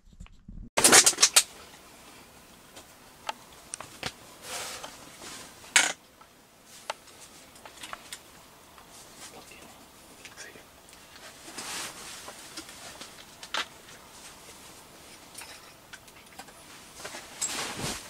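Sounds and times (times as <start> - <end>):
fabric rustling: 3.9 - 5.7, 11.0 - 15.3, 16.6 - 18.0.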